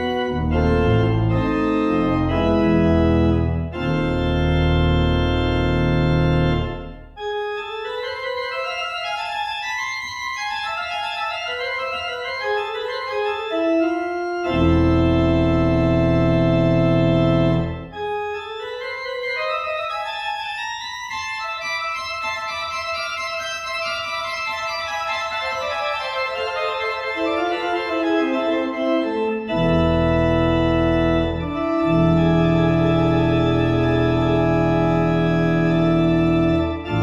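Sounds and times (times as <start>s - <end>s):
deep organ pedal bass notes: 0.0s - 8.5s, 11.6s - 20.6s, 25.6s - 37.0s
pipe organ playing: 0.0s - 37.0s.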